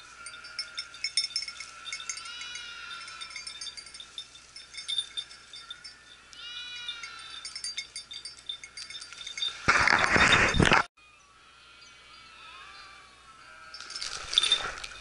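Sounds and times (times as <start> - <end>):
dog bell tinkling: 0.0 - 10.7, 13.7 - 15.0
livestock bleating: 0.1 - 3.6, 6.4 - 7.5, 11.5 - 13.9.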